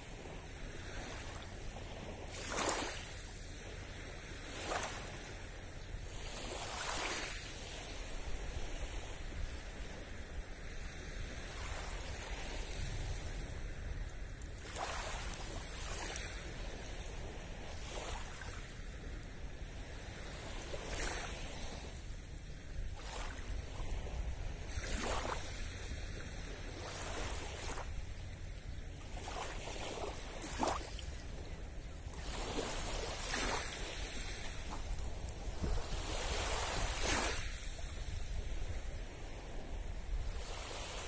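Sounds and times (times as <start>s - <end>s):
gentle waves lapping on sand: 0.0s - 41.0s
wind rumble on microphone: 0.0s - 41.0s.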